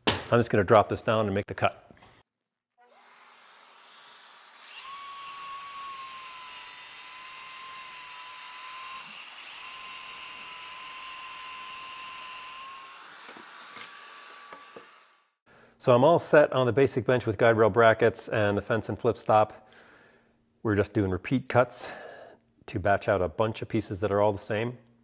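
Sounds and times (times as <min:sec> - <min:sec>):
track saw cutting plywood: 0:03.0 - 0:15.2.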